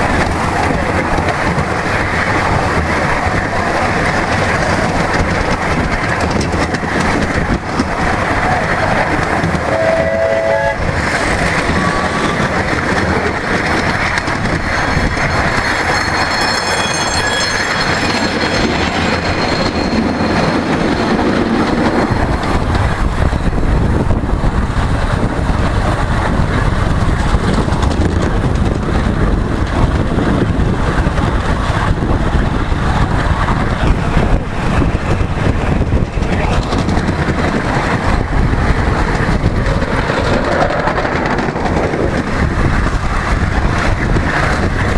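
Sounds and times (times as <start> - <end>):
train wheels clattering on track: 0.0 - 44.9
high-pitched squeal: 9.6 - 22.7.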